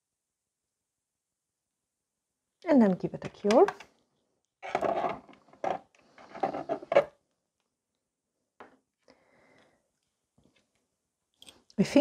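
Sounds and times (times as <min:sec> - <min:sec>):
knocks and scrapes on tabletop: 0:04.6 - 0:07.1.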